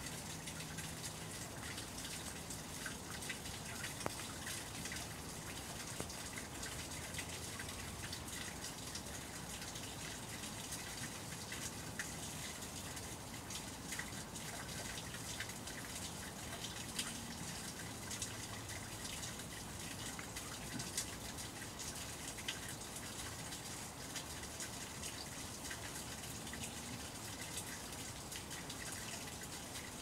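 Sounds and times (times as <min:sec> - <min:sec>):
running water rushing: 0:00.0 - 0:30.0
faint ticks: 0:02.8 - 0:05.0.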